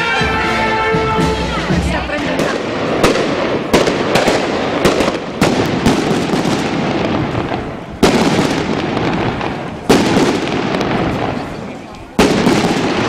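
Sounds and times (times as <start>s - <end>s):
fireworks crackling and banging: 0.0s - 13.0s.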